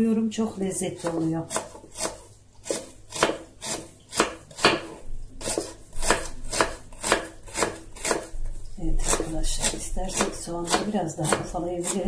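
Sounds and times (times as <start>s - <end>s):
knife chopping on wooden board: 1.0s - 8.3s, 9.0s - 12.0s.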